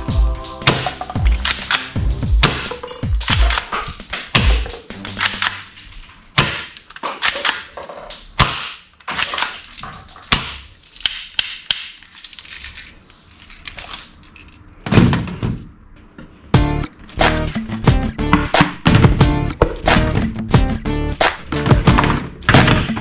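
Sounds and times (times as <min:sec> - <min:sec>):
plastic toy guns clacking on wood: 0:06.4 - 0:12.8.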